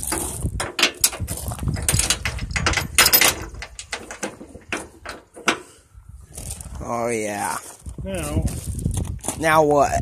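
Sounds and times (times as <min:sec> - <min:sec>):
steel chain rattling and clanking: 0:00.0 - 0:05.7.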